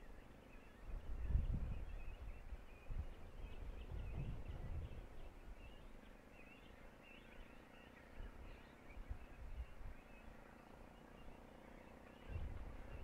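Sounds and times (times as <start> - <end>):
wind rumble on microphone: 0.0 - 6.2, 8.0 - 10.4, 12.1 - 13.0
distant birds chirping: 0.0 - 13.0.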